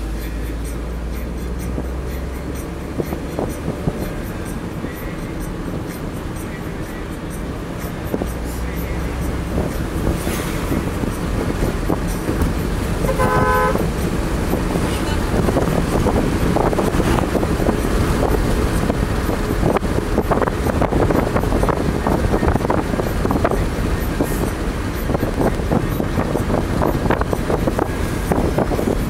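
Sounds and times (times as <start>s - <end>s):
road and wind noise: 0.0s - 29.0s
vehicle horn honk: 13.0s - 14.0s.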